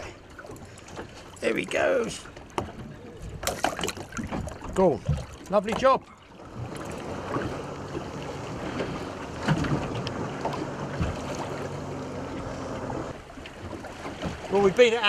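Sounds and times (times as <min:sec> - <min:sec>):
choppy water around boat: 0:00.0 - 0:15.0
motorboat engine drone: 0:06.1 - 0:14.5.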